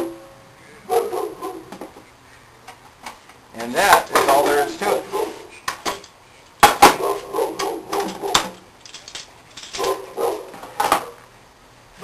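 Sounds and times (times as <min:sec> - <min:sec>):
dog barking: 0:00.9 - 0:01.7, 0:07.0 - 0:08.4, 0:09.8 - 0:11.2.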